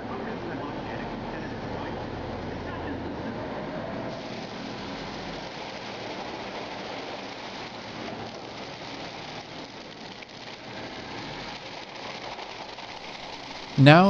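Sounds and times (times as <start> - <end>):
grapes and juice pouring into tank: 4.1 - 13.8.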